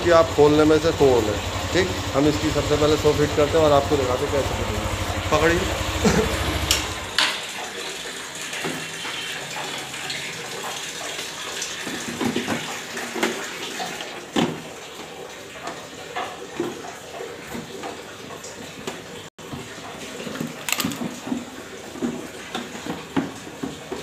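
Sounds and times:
motorcycle engine idling: 0.0s - 7.2s
plastic panels clicking and knocking: 20.3s - 22.2s.

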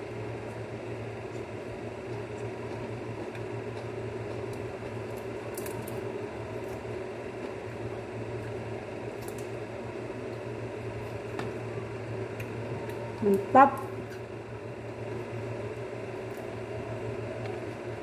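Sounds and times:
appliance humming: 0.0s - 18.0s
chewing: 1.2s - 9.4s.

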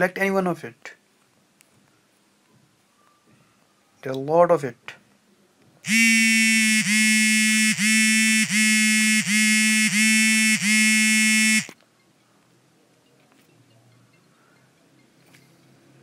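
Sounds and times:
buzzy pulsing ringtone: 5.9s - 11.7s.

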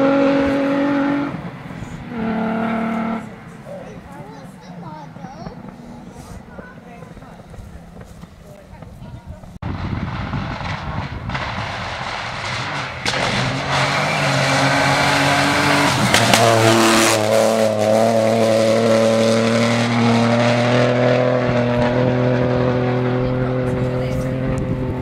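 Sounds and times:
rally car engine at high revs: 0.0s - 4.0s, 10.5s - 25.0s.

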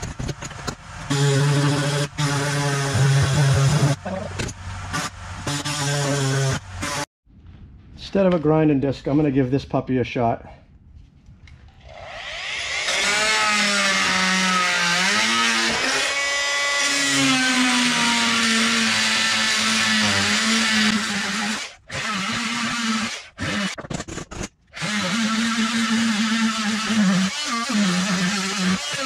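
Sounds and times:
power tool motor whining on metal: 1.0s - 7.1s, 11.8s - 23.8s, 24.8s - 29.0s.

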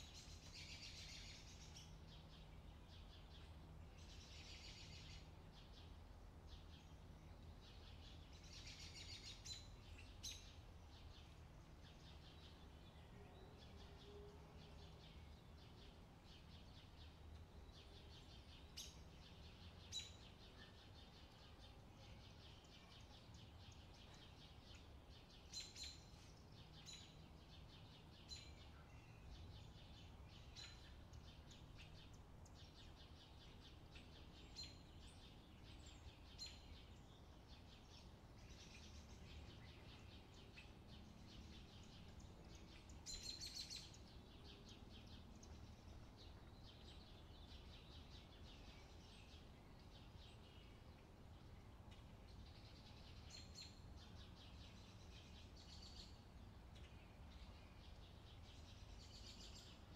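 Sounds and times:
faint low hum: 0.0s - 59.9s.

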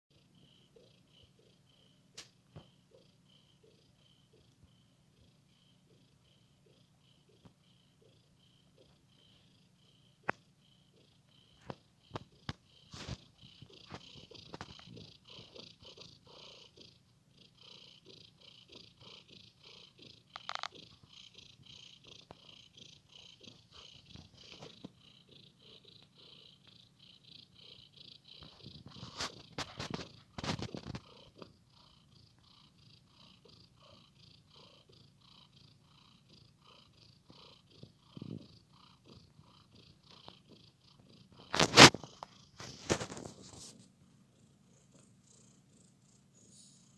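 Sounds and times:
cat purring: 0.1s - 46.9s.

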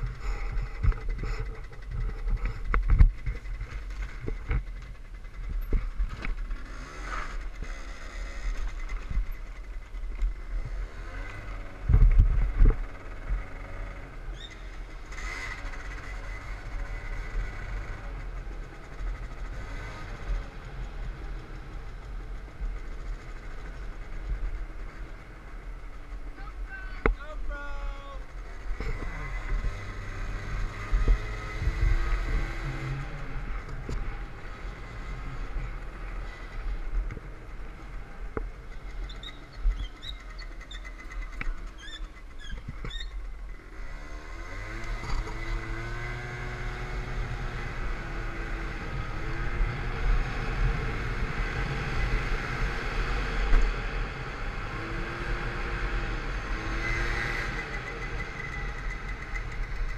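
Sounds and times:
wind rumbling on microphone: 0.0s - 6.4s, 10.6s - 13.6s, 28.7s - 34.3s
scooter engine running: 0.0s - 27.0s, 28.2s - 59.9s.

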